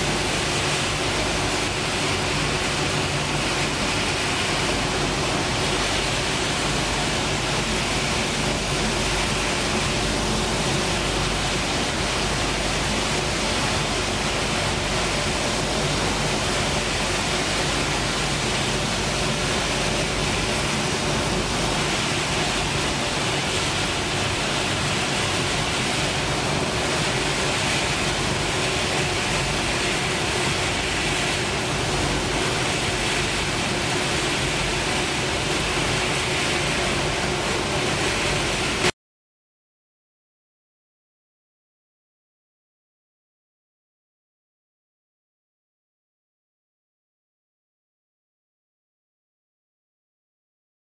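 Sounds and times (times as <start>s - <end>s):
motors fans and blowers running: 0.0s - 38.9s.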